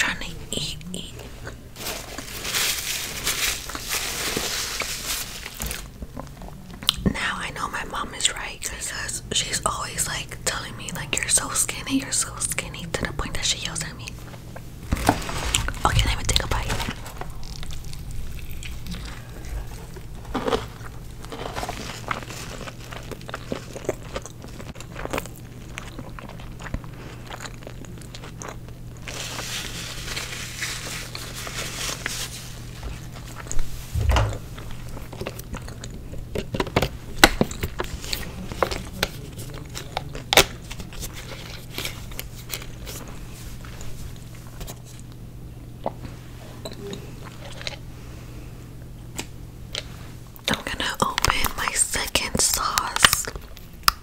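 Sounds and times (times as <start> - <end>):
steady low hum: 0.0 - 54.0
chewing and crunching food: 14.1 - 33.8, 34.5 - 48.4, 49.1 - 54.0.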